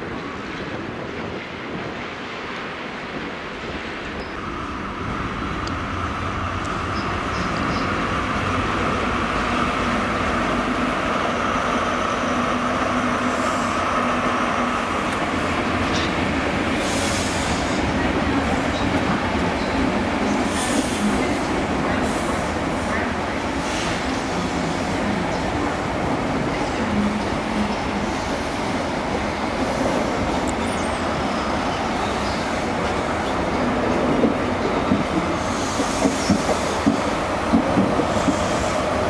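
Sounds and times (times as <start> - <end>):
diesel train engine: 2.6 - 39.0
train wheels clicking over rail joints: 33.9 - 38.9.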